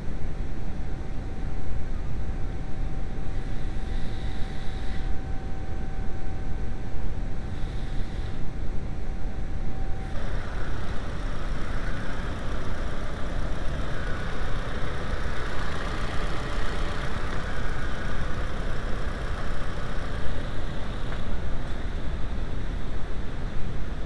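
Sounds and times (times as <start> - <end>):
hiss: 3.3 - 5.2, 7.4 - 8.5, 10.1 - 21.8
car engine idling: 10.1 - 22.3.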